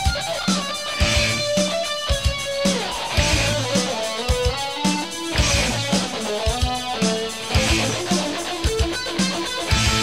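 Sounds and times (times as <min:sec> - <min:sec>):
bass guitar: 0:00.0 - 0:10.0
electric guitar lead line: 0:00.0 - 0:10.0.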